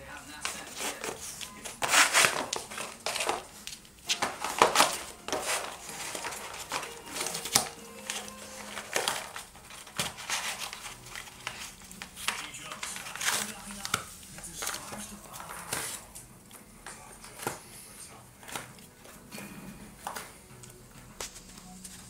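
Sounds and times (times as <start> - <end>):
dog chewing cardboard: 0.0 - 16.6.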